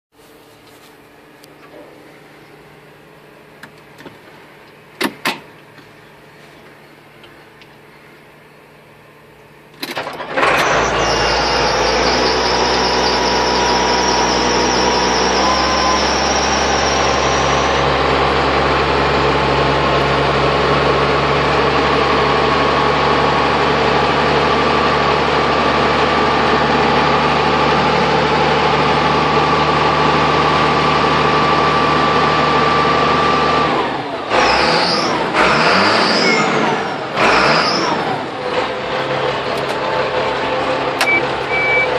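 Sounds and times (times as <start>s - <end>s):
diesel engine idling: 1.9s - 41.9s
diesel engine cranking: 9.7s - 41.9s
high whine: 10.6s - 33.5s.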